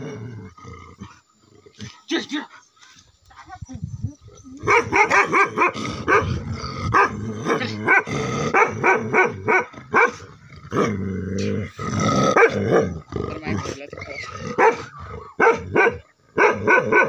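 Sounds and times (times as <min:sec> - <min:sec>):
big dog barking: 0:04.6 - 0:11.0, 0:12.2 - 0:13.0, 0:14.4 - 0:17.0.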